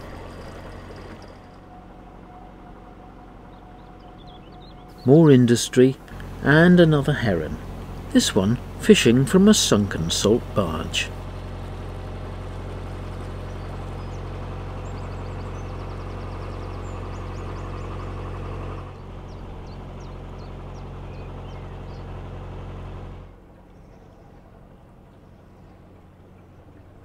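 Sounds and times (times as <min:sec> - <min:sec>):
boat engine humming: 0:00.0 - 0:27.0
small birds chirping: 0:03.5 - 0:09.0, 0:12.6 - 0:18.3, 0:19.0 - 0:22.4.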